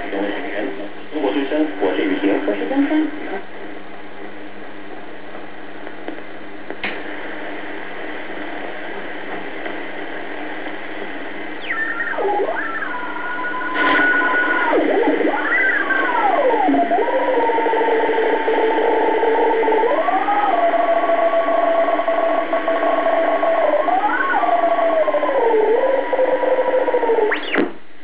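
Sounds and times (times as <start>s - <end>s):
radio tuning click: 0.0s - 17.0s, 27.1s - 28.0s
radio static hiss: 0.0s - 28.0s
swooping radio whistling tones: 11.5s - 27.7s.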